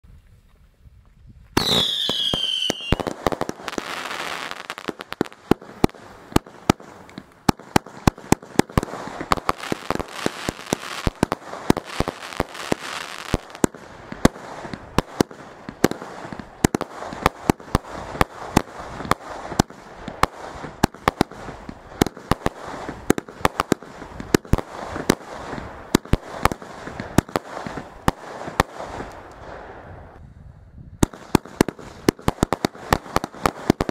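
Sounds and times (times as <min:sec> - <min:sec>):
falling firework whistle: 0:01.6 - 0:03.1
firework crackling: 0:01.6 - 0:30.2, 0:31.0 - 0:33.9
firework shots and bursts: 0:01.6 - 0:30.2, 0:30.9 - 0:33.9.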